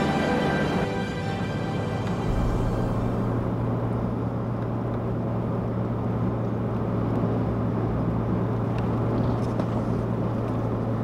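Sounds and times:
car engine drone: 0:00.0 - 0:11.0
road noise: 0:00.0 - 0:11.0.

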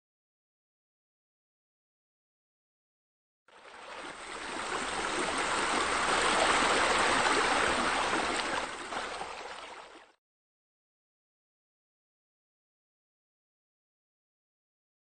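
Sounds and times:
running splashing water: 0:03.6 - 0:10.1.

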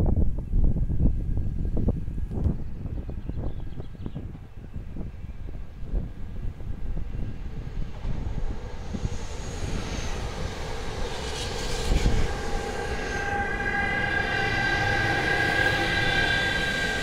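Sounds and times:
electric locomotive whine: 0:00.0 - 0:17.0
freight train rumbling: 0:00.0 - 0:17.0
passenger train rushing past: 0:03.8 - 0:17.0.

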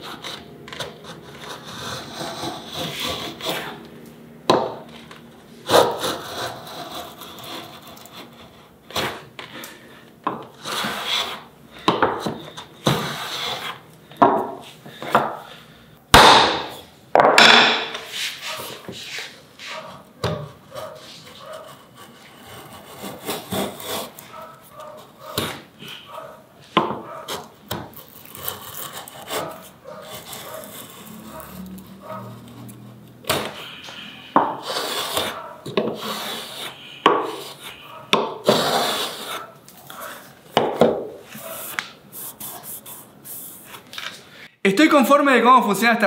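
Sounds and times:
plane blade scraping wood: 0:00.0 - 0:03.9, 0:04.6 - 0:13.8, 0:17.9 - 0:25.6, 0:27.3 - 0:40.4.

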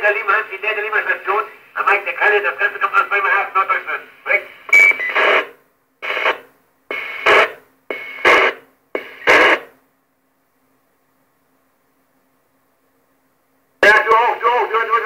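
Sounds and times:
distorted radio transmission bursts: 0:00.0 - 0:09.7
faint steady hum: 0:00.0 - 0:15.0.

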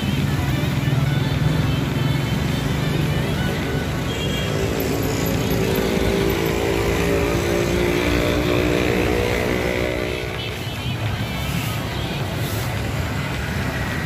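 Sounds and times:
roadside traffic: 0:00.0 - 0:14.0
vehicle engine humming: 0:00.0 - 0:14.0.

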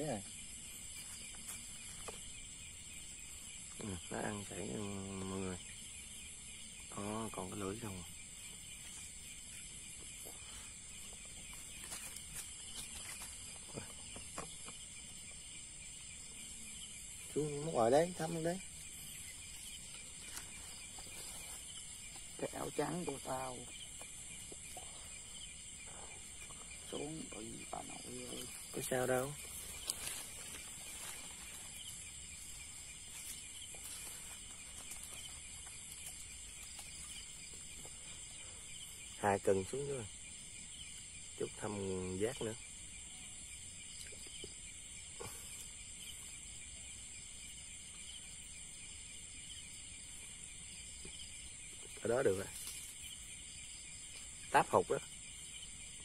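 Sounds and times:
faint ticks and rustles: 0:00.0 - 0:04.8, 0:07.4 - 0:41.6, 0:42.4 - 0:56.0
crickets chirring: 0:00.0 - 0:56.0
insect high-pitched trill: 0:00.0 - 0:56.0
faint rustles: 0:18.7 - 0:22.5, 0:23.7 - 0:38.9, 0:51.8 - 0:53.4.

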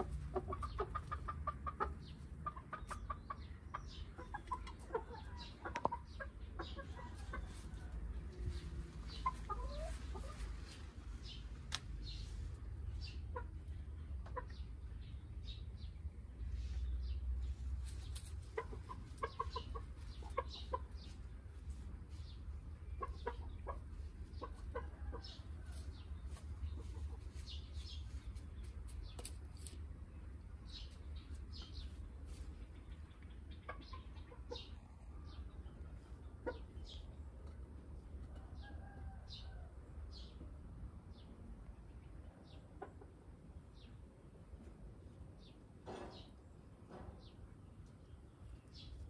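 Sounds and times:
chickens clucking: 0:00.0 - 0:49.0
steady low rumble: 0:05.4 - 0:24.4.

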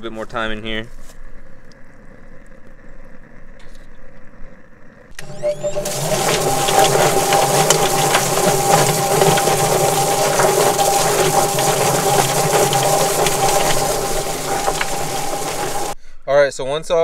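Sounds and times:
motor hum: 0:04.9 - 0:16.0
hose spraying water: 0:05.2 - 0:16.0
slapping knocks in spinning drum: 0:05.2 - 0:16.0.

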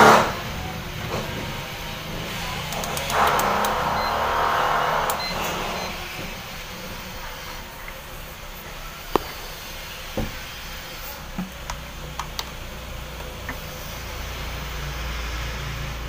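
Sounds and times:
plug clicks and knocks: 0:09.1 - 0:09.4.

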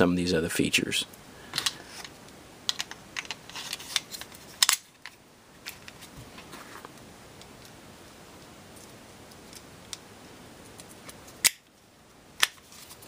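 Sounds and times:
pistol parts clicking and scraping: 0:02.7 - 0:06.0.

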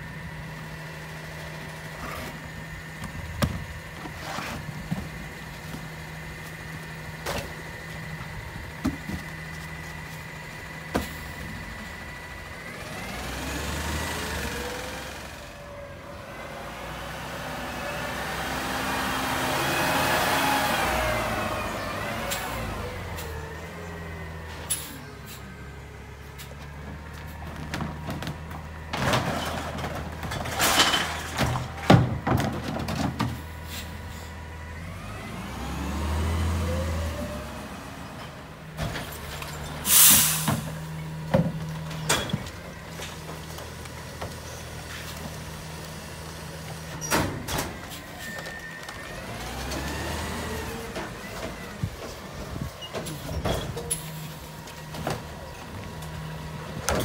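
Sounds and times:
garbage truck engine: 0:00.0 - 0:57.0
bin clanking and thudding: 0:27.6 - 0:33.5
air brake hissing: 0:39.8 - 0:40.7.

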